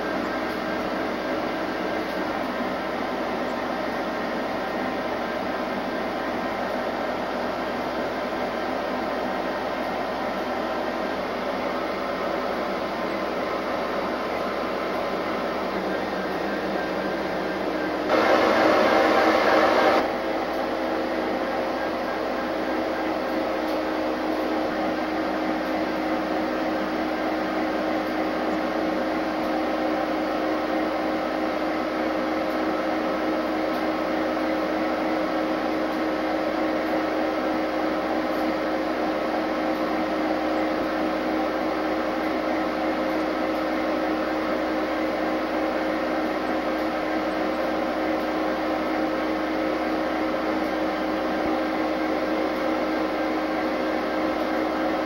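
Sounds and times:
diesel locomotive idling: 0.0s - 31.2s.

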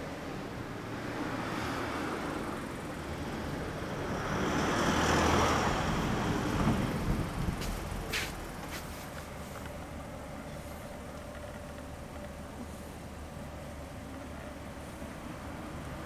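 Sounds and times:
vehicle passing with tyre hiss: 0.0s - 11.2s, 12.6s - 16.0s.

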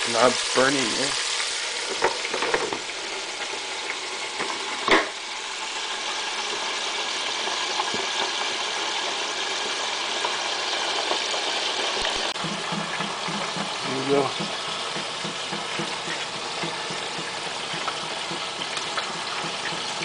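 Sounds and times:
chicken sizzling in deep fryer: 0.0s - 20.0s.

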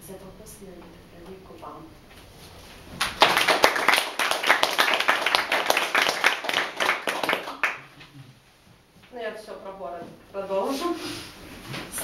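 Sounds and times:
audience clapping: 3.0s - 8.1s.

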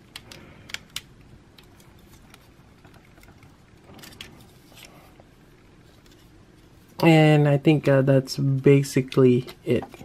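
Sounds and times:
plastic parts clicking and rattling: 0.0s - 4.9s.

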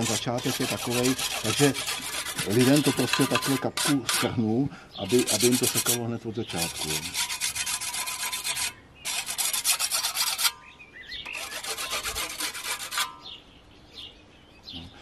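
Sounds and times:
sharpening stone scraping scythe blade: 0.0s - 4.4s, 5.1s - 6.0s, 6.6s - 10.6s, 11.3s - 13.4s
faint bird chirps: 13.2s - 15.0s.

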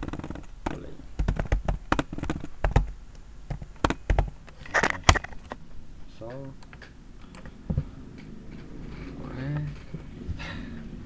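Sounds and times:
computer keyboard typing: 0.0s - 5.3s.

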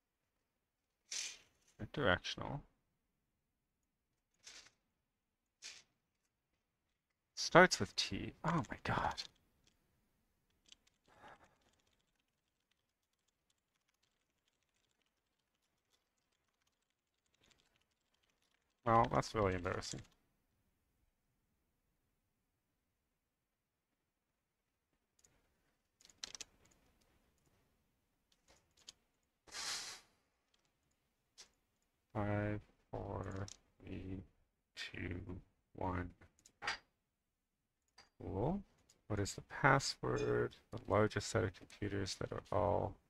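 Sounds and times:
keyboard typing: 10.6s - 20.2s, 26.0s - 26.9s.

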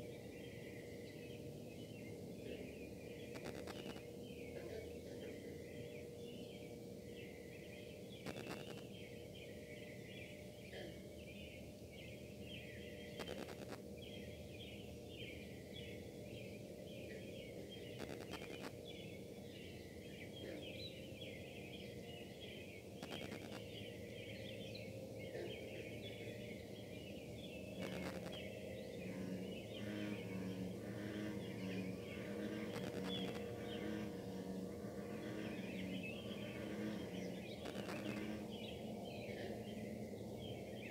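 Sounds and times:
industrial hum with held tone: 0.0s - 40.9s
pulsing interference buzz: 3.2s - 4.1s, 8.2s - 8.9s, 13.1s - 13.8s, 17.9s - 18.8s, 23.0s - 23.7s, 27.8s - 38.7s
faint clicks: 3.3s - 4.0s, 13.2s - 13.8s, 23.0s - 23.6s
high chirping: 3.3s - 4.0s, 8.2s - 8.9s, 13.2s - 13.8s, 18.0s - 18.7s, 23.0s - 23.6s, 27.8s - 28.4s, 31.2s - 34.4s, 35.6s - 38.4s.

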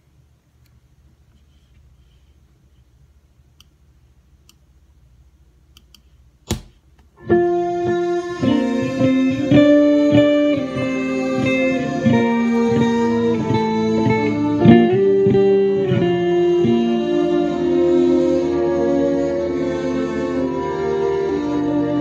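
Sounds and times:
faint amplifier hum: 0.0s - 22.0s
electric guitar ringing chords: 7.2s - 22.0s.

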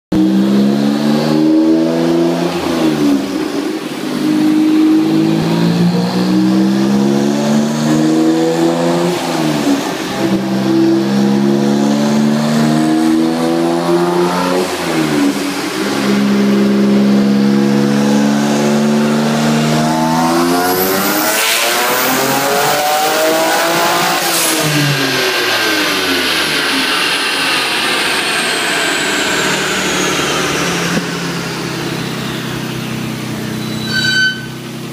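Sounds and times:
car engine accelerating on dyno: 0.1s - 34.0s
thin high whine: 33.4s - 34.8s.

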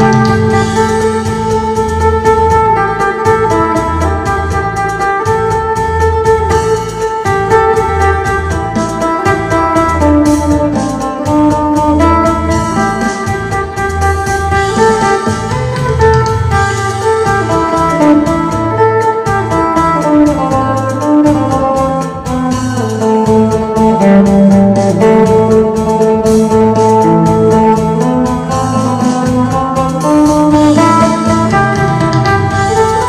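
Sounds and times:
backing track with bass and beat: 0.0s - 33.0s
lute picking fast melody: 0.0s - 33.0s.

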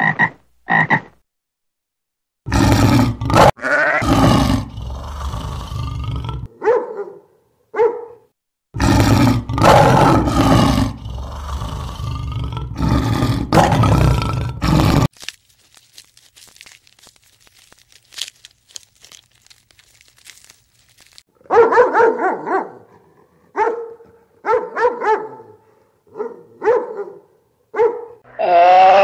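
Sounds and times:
lion grunts: 2.5s - 6.5s, 8.8s - 15.1s
lions roaring: 2.5s - 6.5s, 8.8s - 15.1s.

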